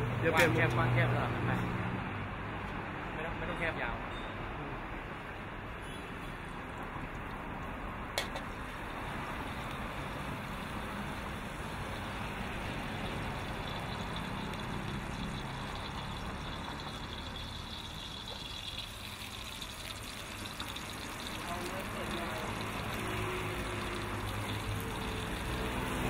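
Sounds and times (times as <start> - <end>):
hot oil hissing: 6.5 - 26.0
chillies sizzling in hot oil: 8.2 - 26.0
gas burner running: 8.2 - 26.0.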